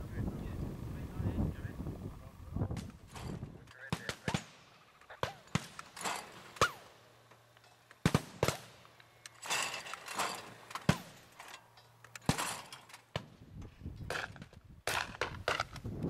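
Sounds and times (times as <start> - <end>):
shotguns firing: 2.7 - 7.0, 8.0 - 8.9, 10.7 - 11.3.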